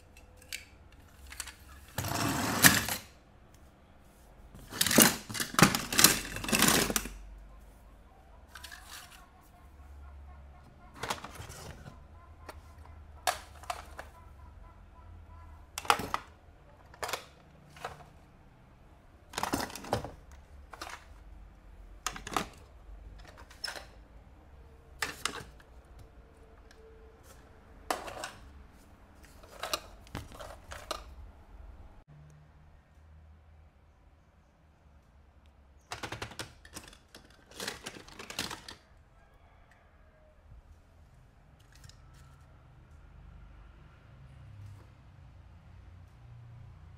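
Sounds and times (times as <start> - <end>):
toy cars clicking and tapping: 8.5 - 9.4, 35.9 - 38.8
plastic packaging rustling: 36.1 - 38.8.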